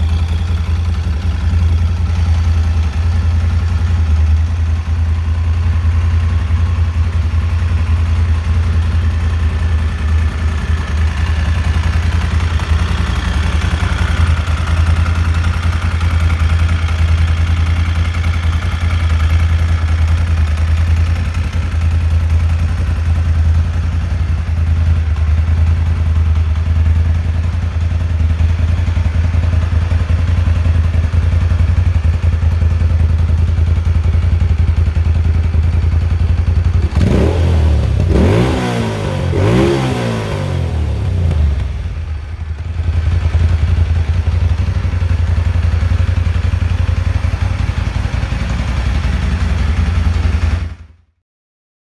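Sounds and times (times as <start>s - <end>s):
motorcycle engine idling: 0.0s - 51.1s
throttle blips revving engine: 36.8s - 41.8s.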